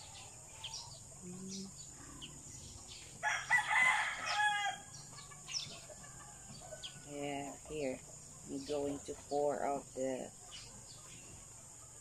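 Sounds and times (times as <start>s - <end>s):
small birds chirping: 0.0s - 12.0s
rooster crowing: 3.2s - 5.0s, 5.8s - 7.1s.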